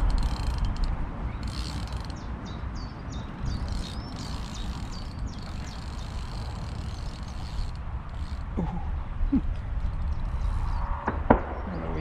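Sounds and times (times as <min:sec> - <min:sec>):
low wind rumble on microphone: 0:00.0 - 0:12.0
small bird chirping: 0:01.2 - 0:08.6.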